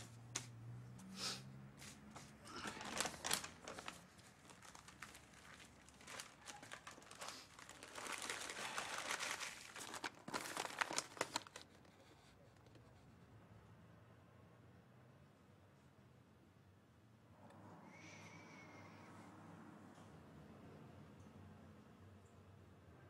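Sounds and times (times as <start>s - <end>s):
paper crinkling and rustling: 1.8s - 13.2s.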